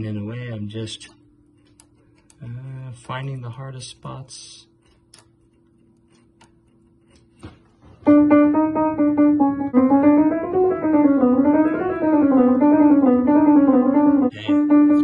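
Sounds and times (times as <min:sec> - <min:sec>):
quick piano runs: 0:07.9 - 0:15.0
piano note struck repeatedly: 0:08.1 - 0:15.0.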